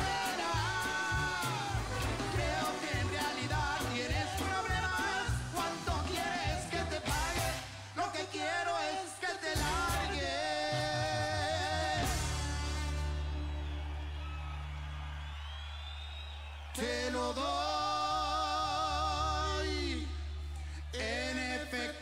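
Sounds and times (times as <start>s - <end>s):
brass band playing: 0.0s - 8.6s, 9.4s - 14.4s.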